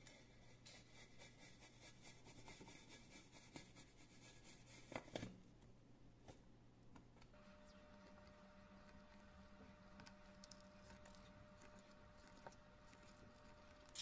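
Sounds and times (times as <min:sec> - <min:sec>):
tin can rubbing and scraping: 0:07.4 - 0:14.0.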